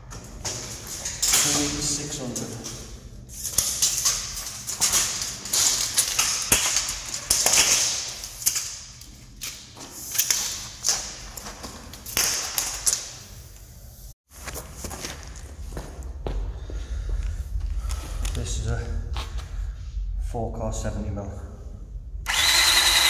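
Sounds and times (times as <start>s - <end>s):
rustling and scraping: 0.0s - 16.5s.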